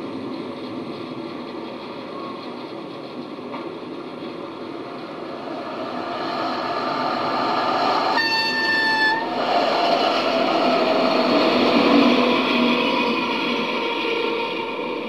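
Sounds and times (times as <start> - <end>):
railcar motor and wheel noise: 0.0 - 15.0
train horn: 8.1 - 9.3.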